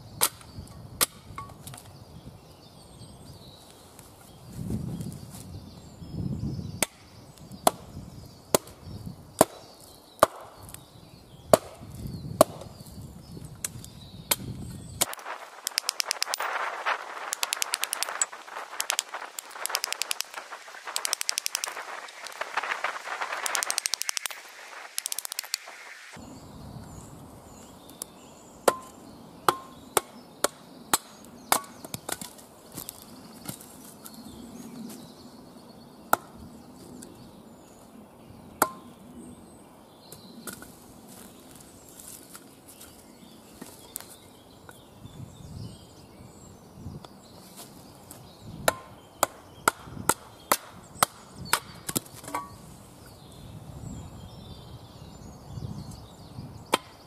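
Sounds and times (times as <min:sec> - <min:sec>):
wood crackling: 0:14.5 - 0:26.2.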